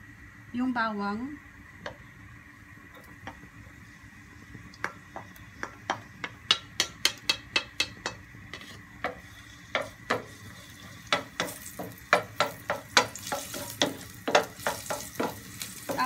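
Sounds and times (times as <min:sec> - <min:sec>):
garlic frying in oil: 0:03.0 - 0:16.0
spatula scraping frying pan: 0:07.8 - 0:16.0.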